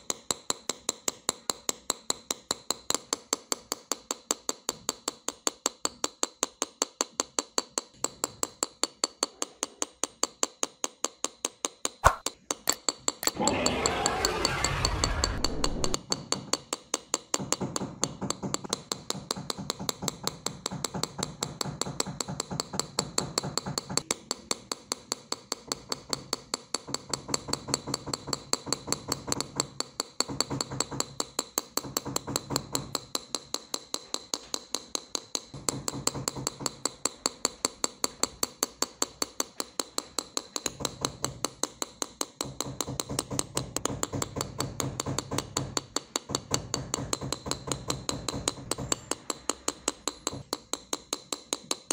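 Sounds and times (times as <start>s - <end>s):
engraving tool tapping metal: 0.0s - 14.2s, 16.0s - 51.9s.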